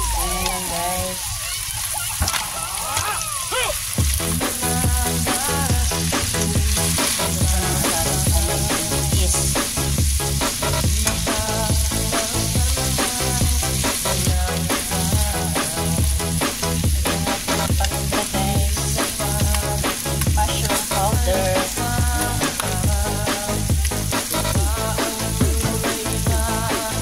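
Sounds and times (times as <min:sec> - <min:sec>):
background music with a beat: 0:00.0 - 0:01.2, 0:03.9 - 0:27.0
food sizzling in a wok: 0:00.0 - 0:27.0
stirring in a wok: 0:03.9 - 0:22.9.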